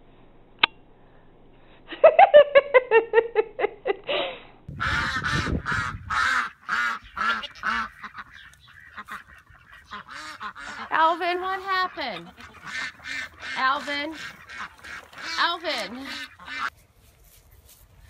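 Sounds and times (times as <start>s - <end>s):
animal honking calls: 4.8s - 16.7s.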